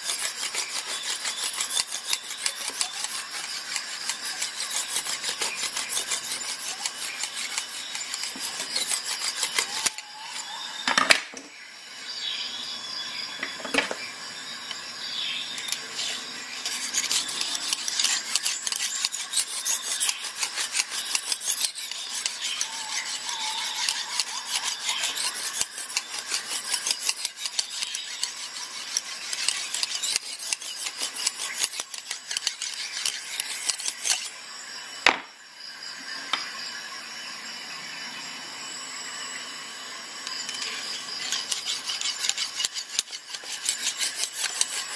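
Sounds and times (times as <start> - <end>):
sharpening stone scraping steel: 0.0 - 10.8, 14.6 - 34.7, 40.2 - 44.9.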